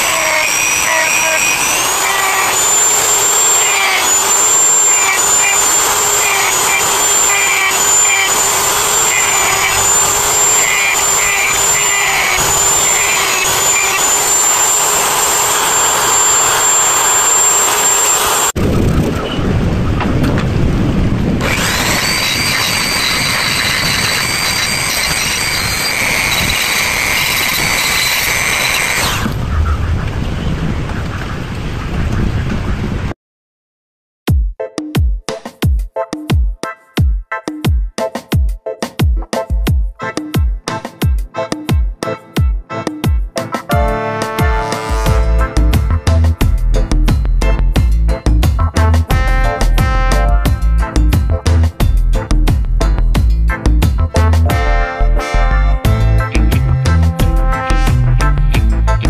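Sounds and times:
rotary tool grinding whine: 0.0 - 19.2, 21.4 - 29.4.

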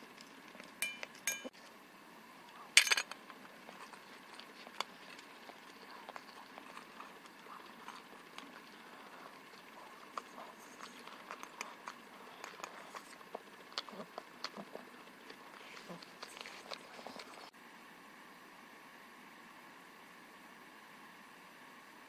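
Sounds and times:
metallic bowl clinks: 0.8 - 1.5
dog licking and chewing: 3.2 - 17.5.

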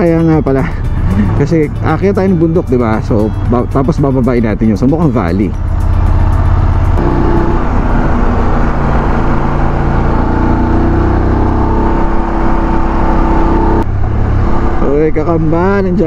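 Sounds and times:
wind and road noise: 0.0 - 16.0
motorcycle engine running: 5.5 - 15.7.

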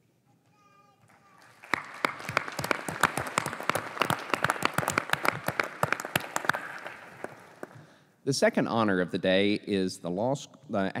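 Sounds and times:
audience applause: 1.1 - 7.8.

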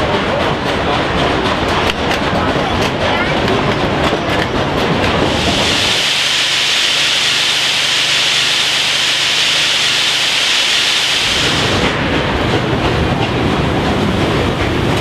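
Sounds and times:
steam locomotive hissing: 0.0 - 15.0
train rumbling along: 0.0 - 15.0.

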